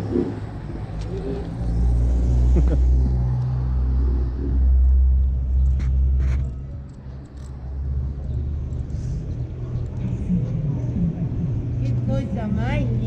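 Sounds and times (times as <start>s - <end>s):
vehicle engine rumble: 0.0s - 13.0s.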